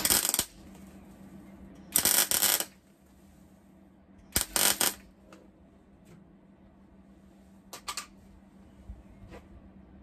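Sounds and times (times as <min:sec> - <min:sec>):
welding arc crackling: 0:00.0 - 0:00.6, 0:01.9 - 0:02.8, 0:04.3 - 0:05.1.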